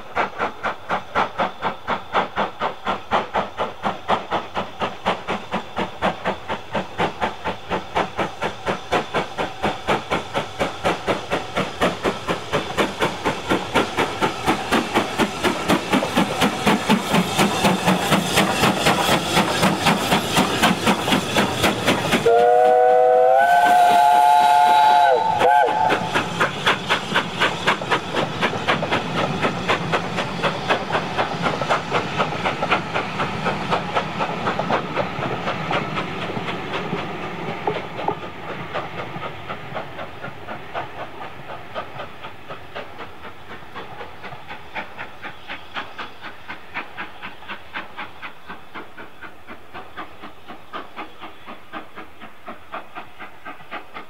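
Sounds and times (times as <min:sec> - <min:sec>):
steam locomotive exhaust beats: 0:00.0 - 0:54.0
steam whistle: 0:22.2 - 0:26.2.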